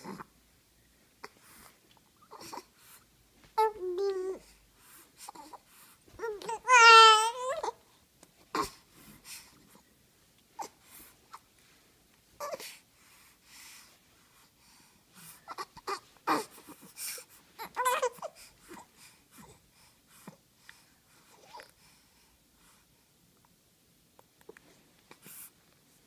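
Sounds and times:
baby cooing: 2.2 - 2.7, 3.6 - 4.5, 6.2 - 7.8, 8.5 - 8.8, 12.4 - 12.7, 15.3 - 18.8.

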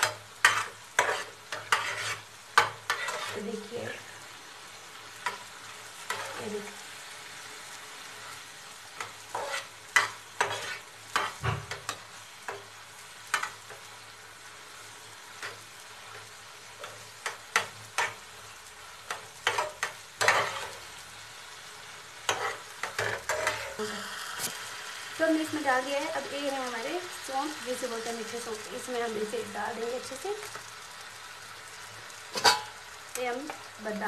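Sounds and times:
metal spatula scraping steel pan: 0.0 - 4.0, 9.3 - 12.0, 19.4 - 20.8, 22.3 - 23.8, 32.3 - 32.7
low sizzle from pan: 0.0 - 34.0.

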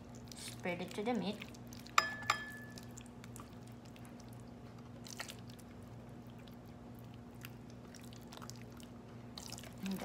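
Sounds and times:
wet squishing of hand rubbing meat: 2.8 - 10.0.

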